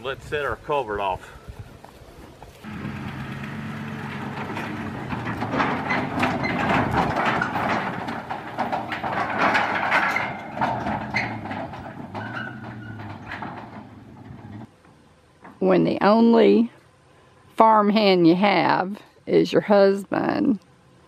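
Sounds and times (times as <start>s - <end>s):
pickup truck engine running: 2.6s - 9.0s
trailer and metal pipes rattling: 2.6s - 14.7s.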